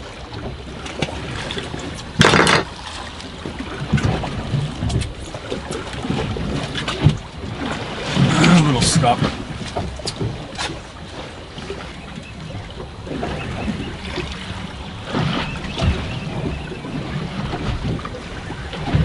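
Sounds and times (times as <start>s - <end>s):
water slapping against boat hull: 0.0s - 19.0s
wind: 0.0s - 19.0s
knocks on board boat: 2.0s - 2.8s, 15.1s - 18.2s.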